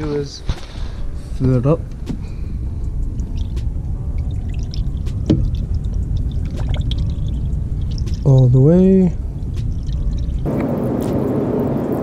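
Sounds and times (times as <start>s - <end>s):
liquid pouring from a plastic jug: 4.2s - 8.3s.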